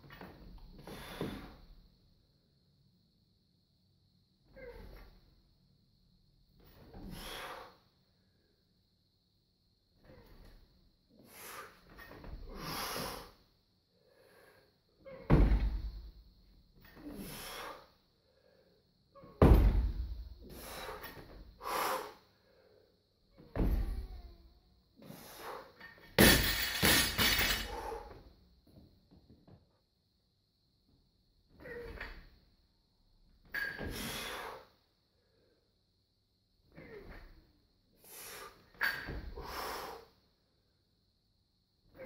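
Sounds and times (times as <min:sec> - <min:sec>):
barbell thudding on floor: 0:26.2 - 0:27.8.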